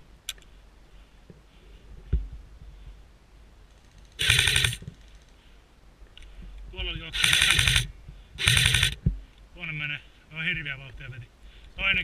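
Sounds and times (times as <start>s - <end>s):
airsoft rifle burst: 4.0s - 5.1s, 7.1s - 9.0s.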